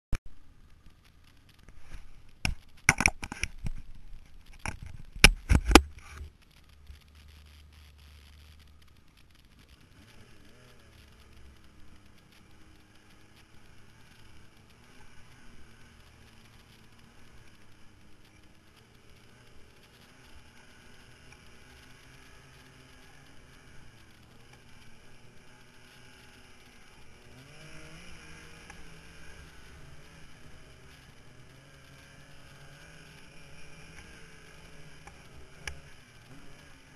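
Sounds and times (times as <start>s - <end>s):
low engine rumble: 0.3s - 36.9s
camera knocking and rattling: 2.4s - 6.3s
faint low drone: 3.7s - 36.9s.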